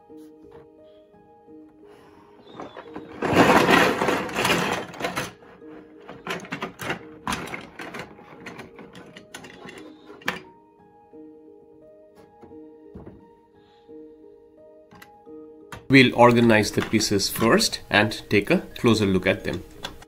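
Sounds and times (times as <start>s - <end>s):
plastic pieces clicking: 2.4s - 10.5s, 14.9s - 17.9s, 18.7s - 20.0s
plastic toy bricks clattering: 2.5s - 10.5s, 15.8s - 17.9s.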